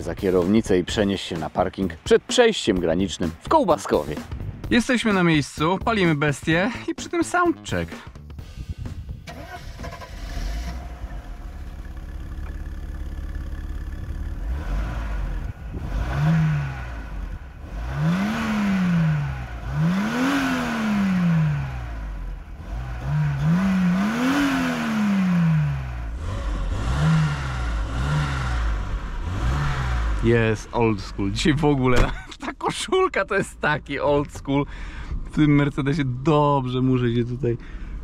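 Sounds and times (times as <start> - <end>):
car engine idling and revving: 7.7 - 38.0.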